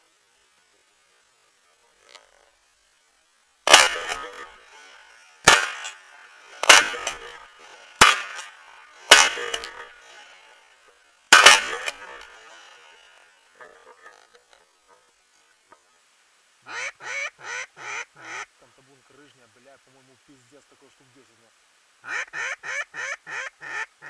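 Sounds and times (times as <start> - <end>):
shotgun shots with echo: 3.7 - 4.5, 5.4 - 6.0, 6.6 - 7.4, 8.0 - 9.9, 11.3 - 12.3.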